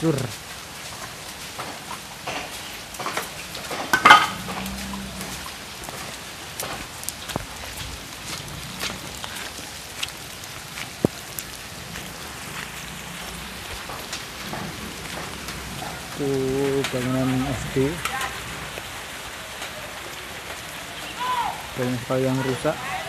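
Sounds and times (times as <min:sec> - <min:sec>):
rain hissing: 0:00.0 - 0:23.0.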